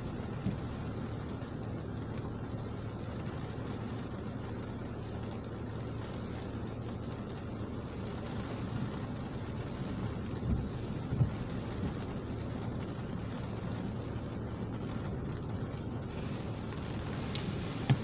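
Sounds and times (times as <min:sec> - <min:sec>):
windscreen wiper thumps: 0:00.0 - 0:03.9, 0:07.9 - 0:18.0
idling engine hum: 0:00.0 - 0:18.0
rain pattering on windscreen: 0:00.0 - 0:18.0.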